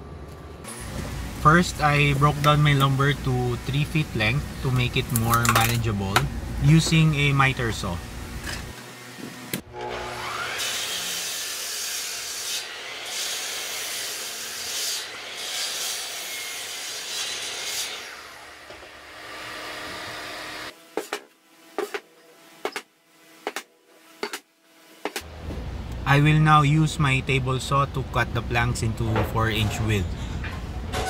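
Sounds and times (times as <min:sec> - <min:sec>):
miter saw whining and cutting: 0:08.4 - 0:20.7.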